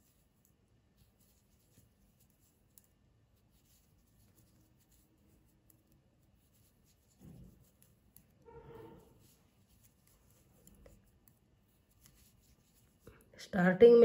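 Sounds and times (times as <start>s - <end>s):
knitting needles clicking: 1.2s - 8.4s, 9.6s - 13.0s.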